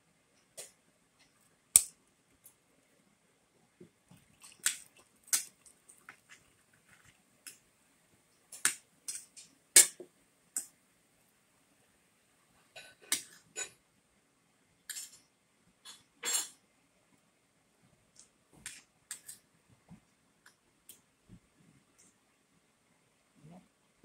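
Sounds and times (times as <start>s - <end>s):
cutlery clinking on plate: 15.9s - 16.6s.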